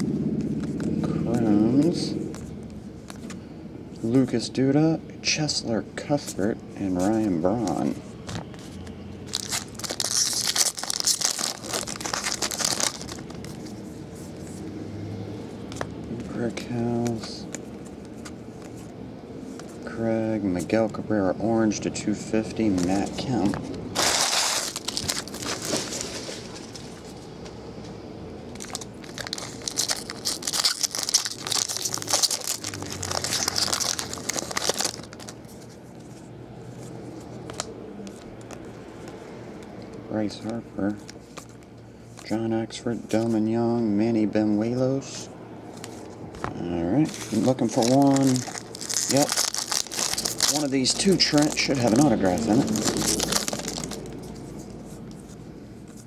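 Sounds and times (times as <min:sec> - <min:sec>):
foil wrapper crinkling and tearing: 0:09.3 - 0:13.7, 0:24.0 - 0:26.9, 0:28.6 - 0:35.5, 0:47.0 - 0:54.8.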